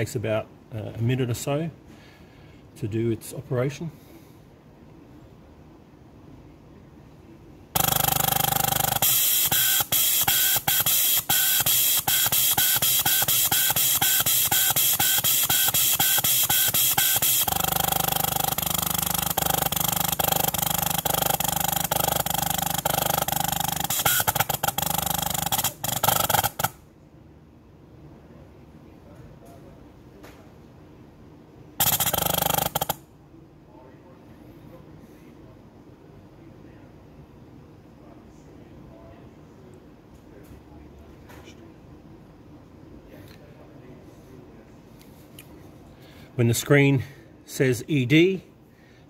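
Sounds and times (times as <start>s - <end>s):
regular pulsing: 7.8s - 26.8s, 31.8s - 33.0s
compressed air hissing: 9.0s - 17.7s.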